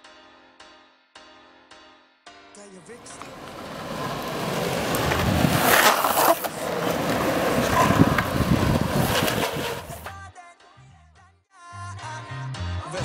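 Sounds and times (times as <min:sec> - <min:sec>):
longboard wheels rolling on pavement: 0:03.0 - 0:10.1.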